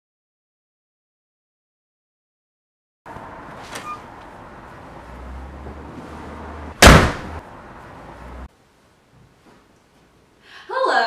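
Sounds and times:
door slamming shut: 6.8s - 7.4s.

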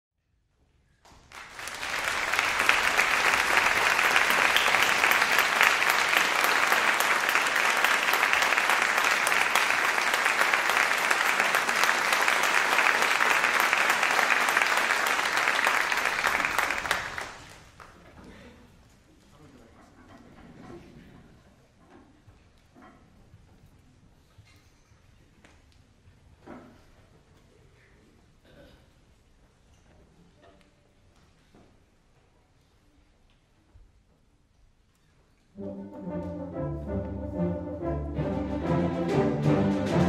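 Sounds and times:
audience applauding: 1.1s - 18.0s.

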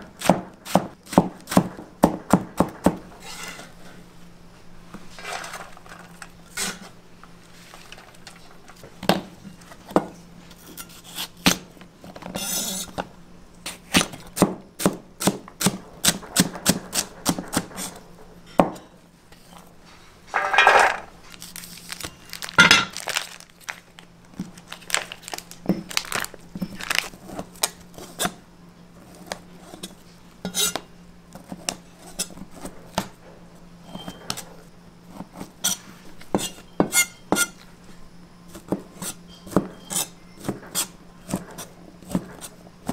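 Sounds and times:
plastic packet rustling: 21.2s - 27.7s.

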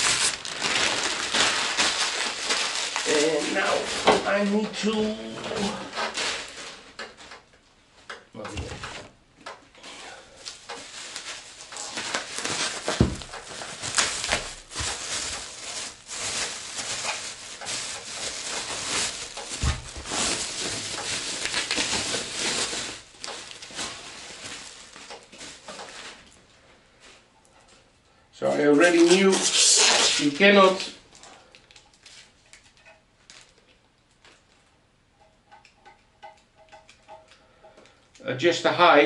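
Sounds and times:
plastic bag crinkling: 0.0s - 7.3s, 9.9s - 26.5s, 28.8s - 34.7s.

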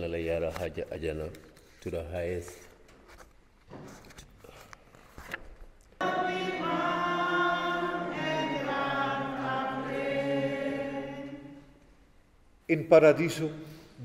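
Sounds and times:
choir singing sustained notes: 6.0s - 11.9s.

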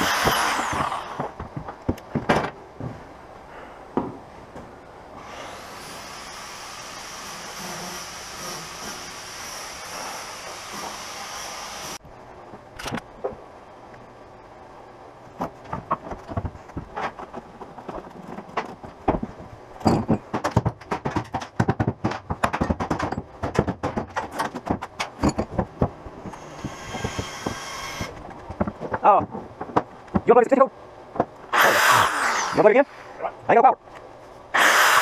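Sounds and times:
knocks and clatter on boat deck: 15.4s - 30.4s.

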